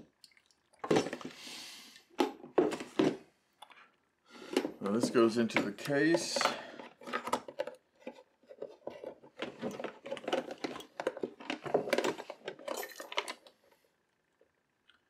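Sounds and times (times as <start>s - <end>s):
plastic case clicking and clattering: 4.5s - 13.5s.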